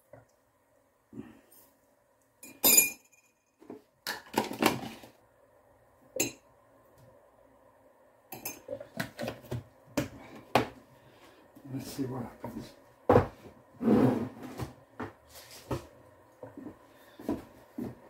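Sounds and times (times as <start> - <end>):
metal spoon clinking on mug: 2.4 - 3.4, 8.3 - 8.6
containers knocking and clattering: 3.6 - 5.1.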